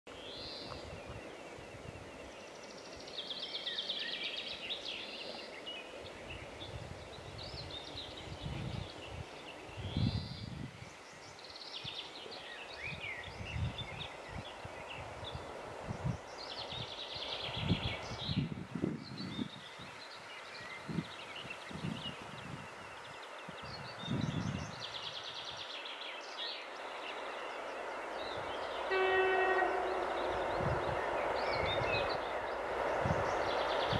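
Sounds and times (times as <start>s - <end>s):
wind buffeting microphone: 0.1s - 3.2s, 4.9s - 12.0s, 12.7s - 25.7s, 26.8s - 33.9s
songbirds chirping and trilling: 0.1s - 33.9s
small birds trilling: 23.2s - 33.9s
distant diesel locomotive rumble: 26.9s - 33.9s.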